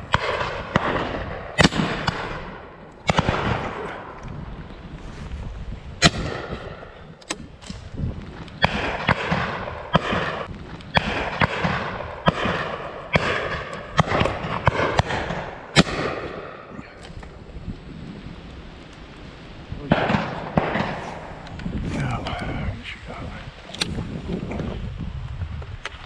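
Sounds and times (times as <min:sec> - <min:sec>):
shotgun shots with echo: 0:00.1 - 0:04.1, 0:08.6 - 0:16.7, 0:19.9 - 0:21.3.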